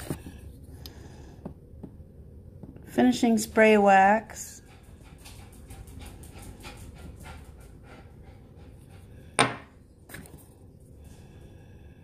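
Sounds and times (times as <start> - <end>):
dog panting: 4.4 - 9.3.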